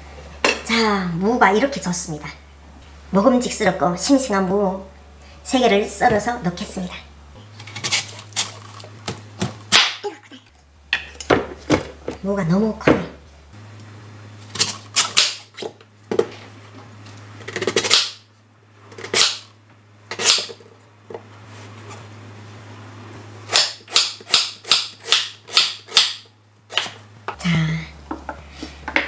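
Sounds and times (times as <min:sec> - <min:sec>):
knife chopping on wooden board: 0:23.6 - 0:27.0.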